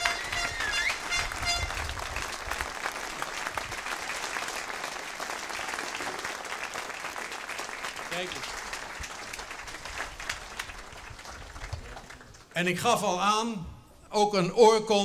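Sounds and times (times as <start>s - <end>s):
whistle: 0.0s - 1.8s
crowd applauding: 0.0s - 12.6s.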